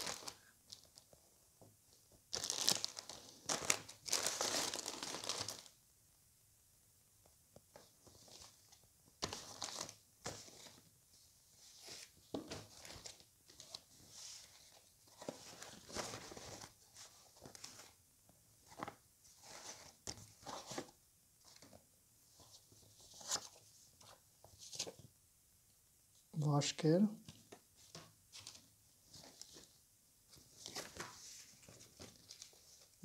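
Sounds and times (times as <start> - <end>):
plastic packaging crinkling: 2.3 - 5.7.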